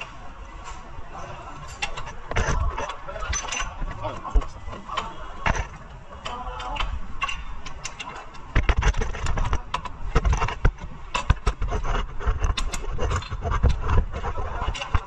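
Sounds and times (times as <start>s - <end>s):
tools clicking and knocking on metal: 5.0s - 14.0s.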